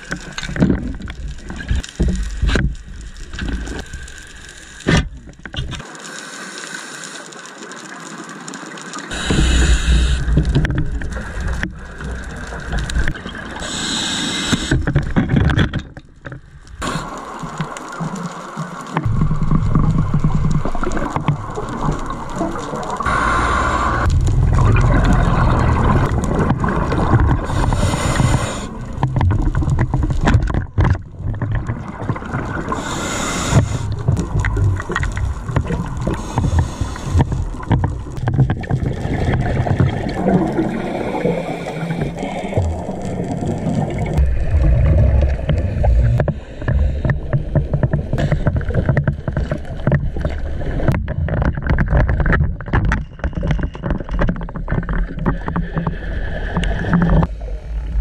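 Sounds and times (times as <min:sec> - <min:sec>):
exhaled bubbles burbling underwater: 0:16.8 - 0:58.0
steady low rumble: 0:19.1 - 0:30.3, 0:42.6 - 0:48.2, 0:57.2 - 0:58.0.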